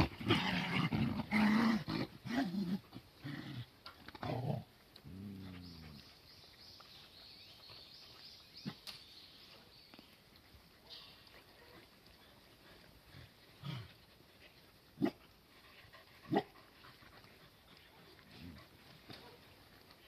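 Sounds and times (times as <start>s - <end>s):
puppies growling: 0.0s - 6.1s.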